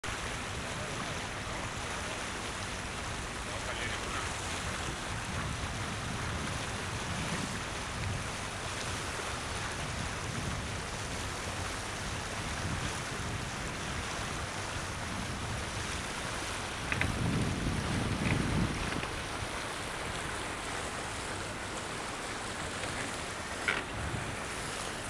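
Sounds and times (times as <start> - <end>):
water rushing along boat hull: 0.0 - 25.0
wind buffeting microphone: 4.5 - 8.6, 9.5 - 21.6, 22.2 - 24.9.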